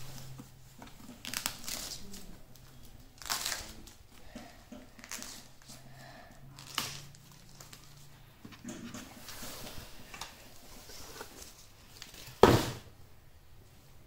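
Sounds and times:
plastic film crinkling: 0:00.0 - 0:04.2, 0:05.0 - 0:05.8, 0:06.5 - 0:08.1
plastic film sharp crack: 0:01.1 - 0:04.0.

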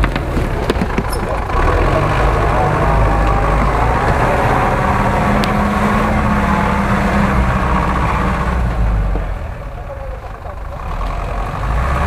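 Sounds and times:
truck engine running under load: 0:00.0 - 0:12.0.

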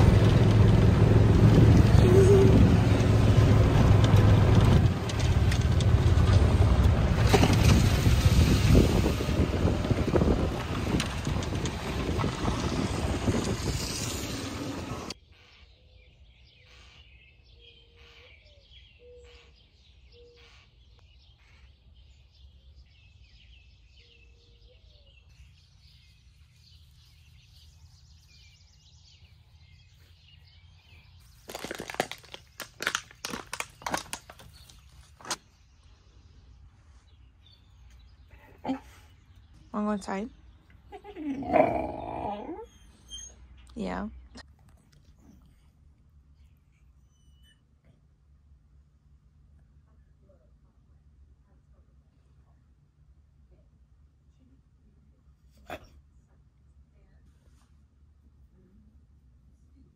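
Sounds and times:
vehicle low hum: 0:00.0 - 0:15.2, 0:16.1 - 0:59.9
wind rushing over microphone: 0:00.0 - 0:15.2
bird chirps and calls: 0:15.2 - 0:31.5.

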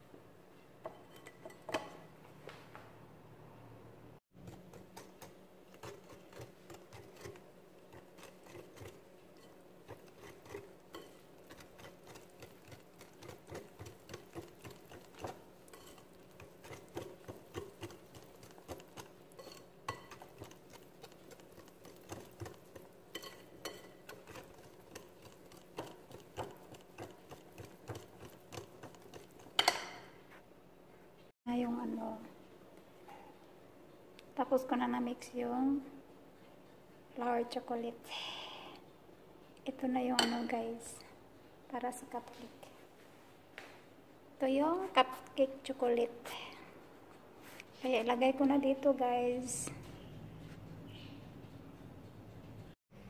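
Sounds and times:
whisk scraping glass bowl: 0:04.5 - 0:30.0.

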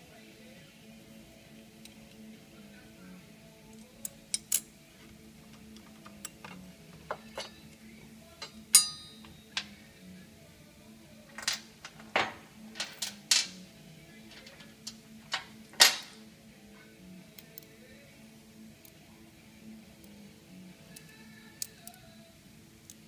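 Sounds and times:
metal bracket clinking and knocking: 0:08.4 - 0:09.8, 0:11.3 - 0:13.6, 0:14.3 - 0:16.2.

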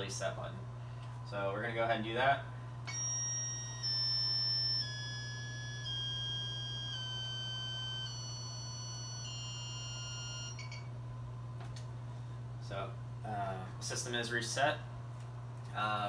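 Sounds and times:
electronic buzzer beeping tune: 0:02.9 - 0:10.9.

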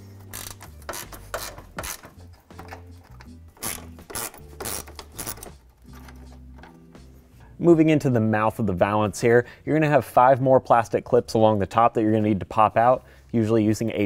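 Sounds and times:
background music with bass line: 0:00.0 - 0:09.2
hand ratchet clicking: 0:00.2 - 0:06.8.

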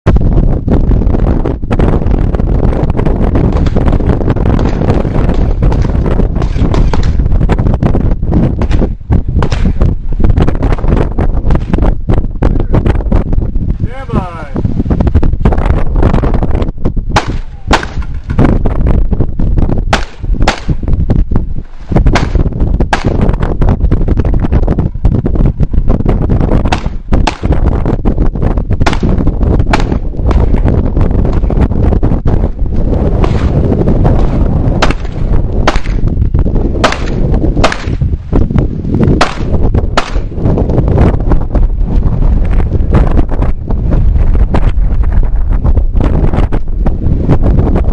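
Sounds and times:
wind rumble on microphone: 0:00.0 - 0:47.9
pistol shots: 0:17.2 - 0:18.2, 0:19.9 - 0:20.8, 0:22.1 - 0:23.2, 0:26.7 - 0:27.6, 0:28.8 - 0:30.1, 0:34.8 - 0:36.0, 0:36.8 - 0:38.0, 0:39.2 - 0:40.3.

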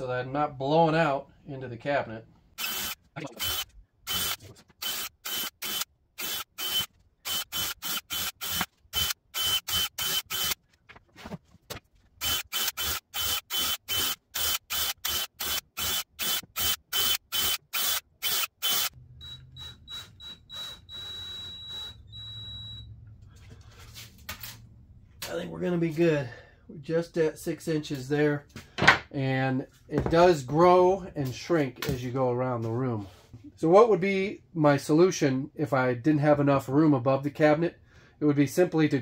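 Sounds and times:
cordless drill bursts: 0:02.6 - 0:10.6, 0:12.2 - 0:22.8.

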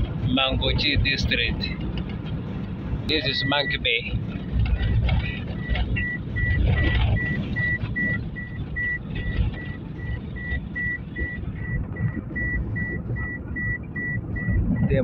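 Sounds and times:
vehicle driving rumble: 0:00.0 - 0:15.0
high electronic beeps: 0:03.1 - 0:15.0.

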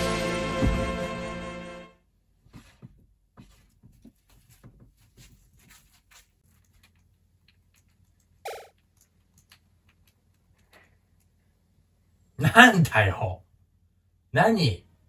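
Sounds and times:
footsteps and rustles: 0:02.4 - 0:08.2.

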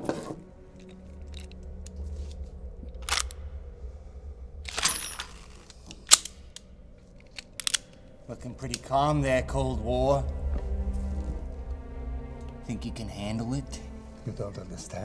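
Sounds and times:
low music drone: 0:00.0 - 0:15.0
revolver metallic clicks: 0:04.7 - 0:08.1.

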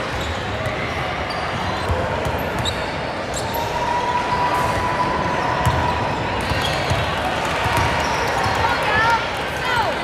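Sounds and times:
crowd noise in echoing hall: 0:00.0 - 0:10.0
basketball bouncing on gym floor: 0:05.6 - 0:05.8, 0:06.4 - 0:08.6.

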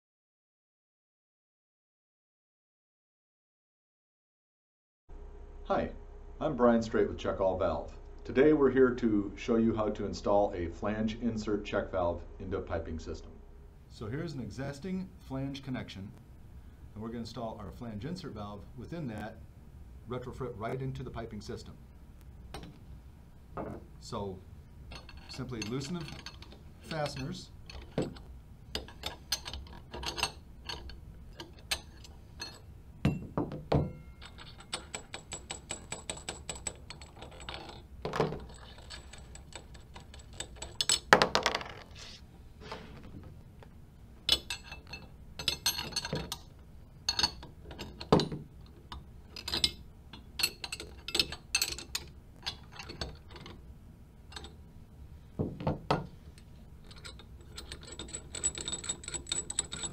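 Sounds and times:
metal nuts clicking and clinking: 0:22.5 - 0:22.8, 0:24.9 - 0:41.9, 0:44.2 - 0:53.6, 0:54.3 - 0:54.6, 0:55.6 - 0:59.9
metal part clunk: 0:22.5 - 0:22.8, 0:23.6 - 0:23.9, 0:24.9 - 0:41.8, 0:44.3 - 0:46.5, 0:47.1 - 0:53.6.

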